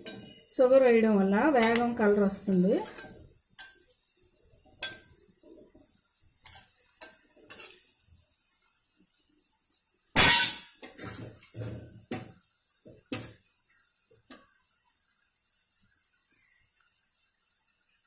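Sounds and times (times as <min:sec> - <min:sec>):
oil sizzling: 0:00.0 - 0:18.0.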